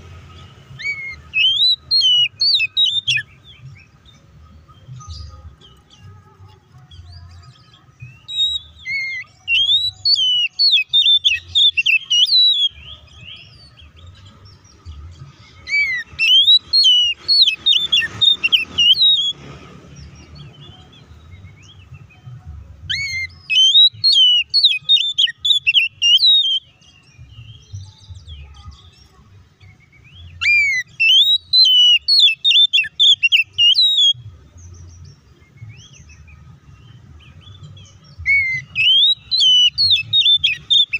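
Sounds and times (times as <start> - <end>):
bird singing whistles and chatter: 0.4 - 40.9.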